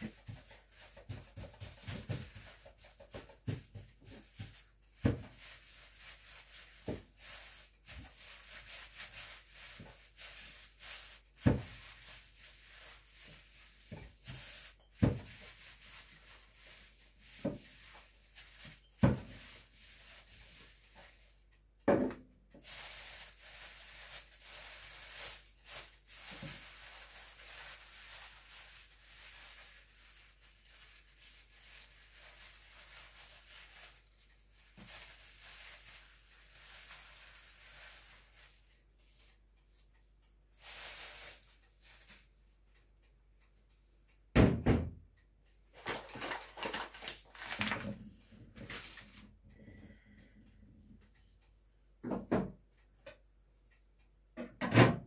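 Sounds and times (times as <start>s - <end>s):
plastic bag crinkling: 0.0s - 21.4s, 22.6s - 38.7s, 40.6s - 42.2s, 45.8s - 48.0s.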